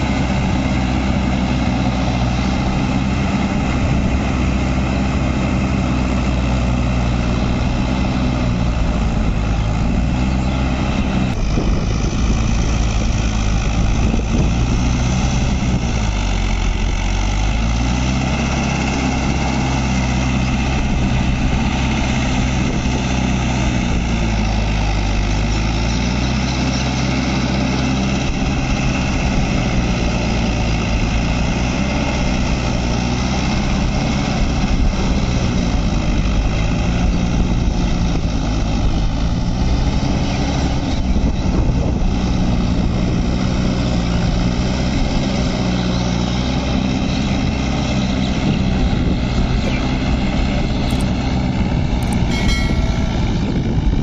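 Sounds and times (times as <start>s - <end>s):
tractor diesel engine running: 0.0s - 54.0s
short electronic chime: 52.0s - 53.5s.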